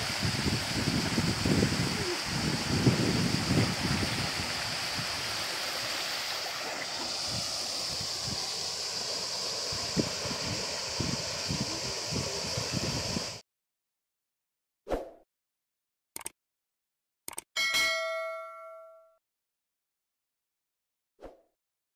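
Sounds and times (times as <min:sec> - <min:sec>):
small low splashes: 0:00.0 - 0:13.2.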